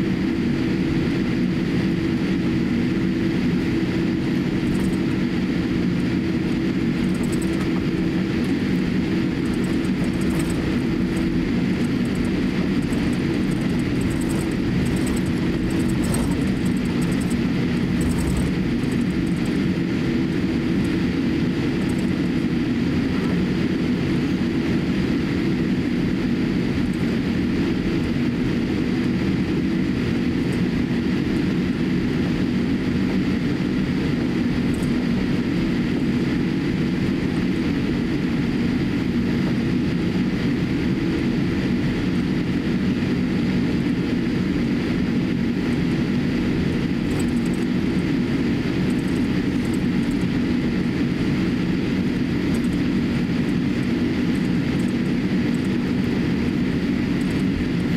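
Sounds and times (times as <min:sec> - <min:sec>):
aircraft cabin drone: 0:00.0 - 0:57.9
faint whine tones: 0:04.3 - 0:23.6.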